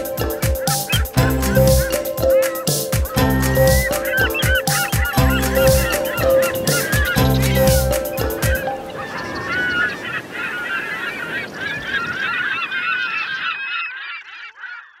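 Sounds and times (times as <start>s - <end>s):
flock of birds calling: 0.0s - 15.0s.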